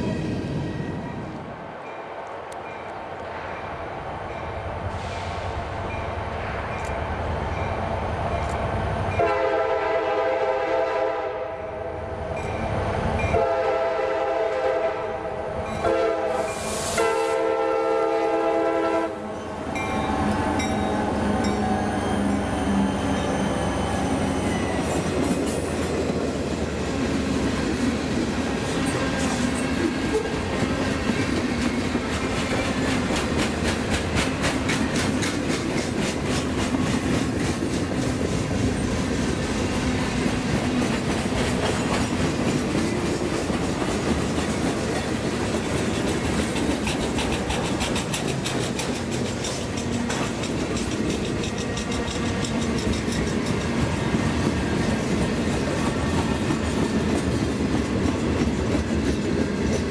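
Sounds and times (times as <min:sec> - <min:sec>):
train rumbling and rattling: 0:00.0 - 0:59.9
steel wheels clicking over rail joints: 0:28.8 - 0:39.5, 0:40.1 - 0:59.9.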